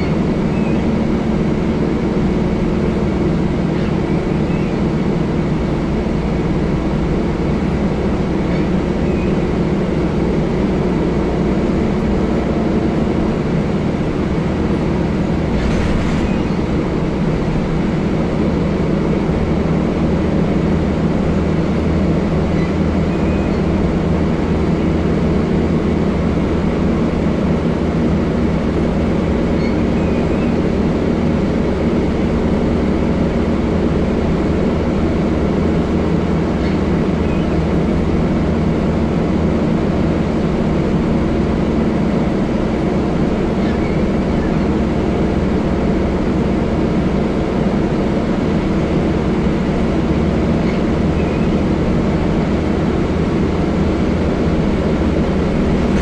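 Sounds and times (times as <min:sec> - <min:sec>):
bus diesel engine running: 0:00.0 - 0:56.0
road noise: 0:00.0 - 0:56.0.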